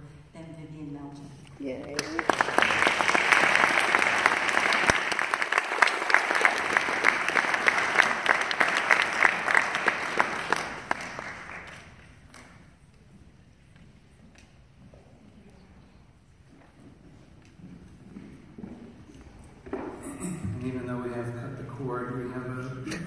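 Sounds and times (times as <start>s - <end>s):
audience applauding: 1.9s - 12.6s.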